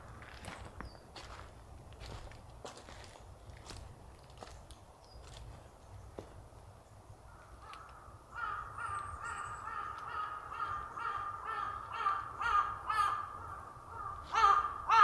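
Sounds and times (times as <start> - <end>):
crow cawing: 7.3 - 15.0.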